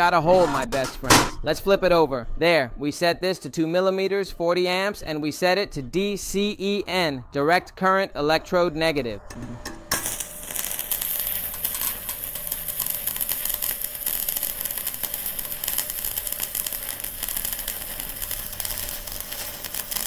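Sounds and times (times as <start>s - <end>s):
welding arc crackling and sizzling: 9.6s - 20.0s.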